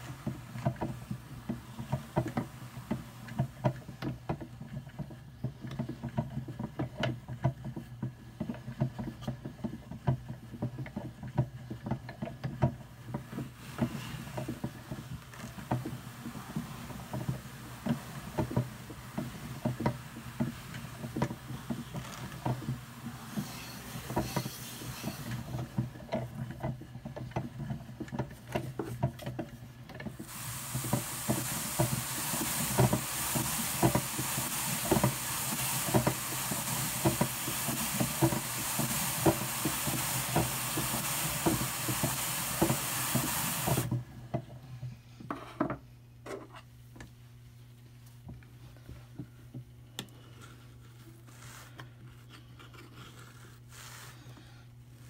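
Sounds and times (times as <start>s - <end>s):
hand-cranked carder clicking: 0.0s - 44.0s
brush rasping on carding cloth: 50.4s - 52.2s, 52.9s - 54.4s.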